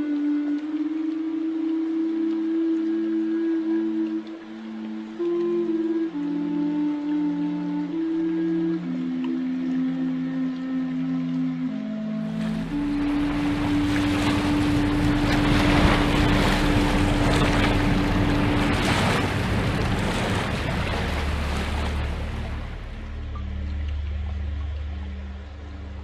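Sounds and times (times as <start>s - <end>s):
sustained low musical notes: 0.0s - 26.0s.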